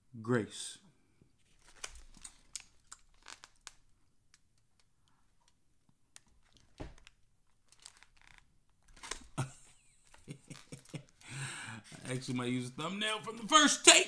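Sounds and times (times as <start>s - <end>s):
handling noises: 6.2s - 11.3s.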